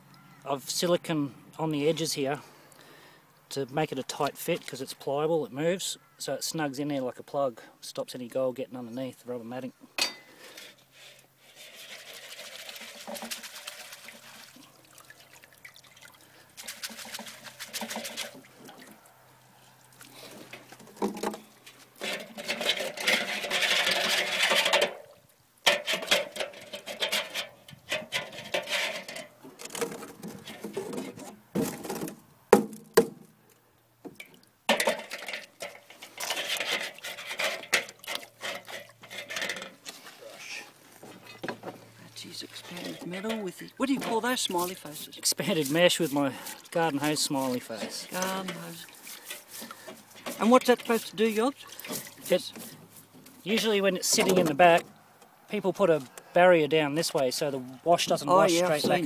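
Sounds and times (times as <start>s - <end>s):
water splashing and pouring: 11.6s - 25.2s, 34.2s - 40.8s, 42.1s - 52.8s
sharp knocks: 31.6s - 33.3s.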